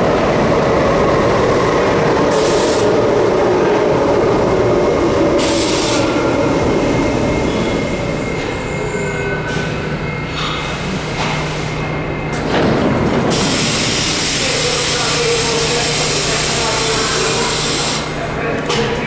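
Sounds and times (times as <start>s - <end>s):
subway train braking: 0.0s - 19.0s
air brake hiss: 13.3s - 18.1s.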